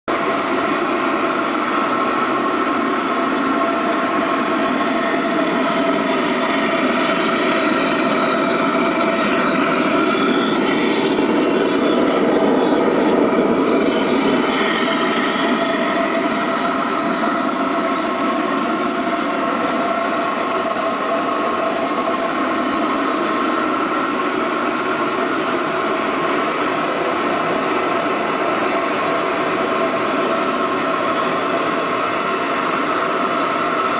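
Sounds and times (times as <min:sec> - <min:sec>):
oil burner roaring: 0:00.0 - 0:33.9.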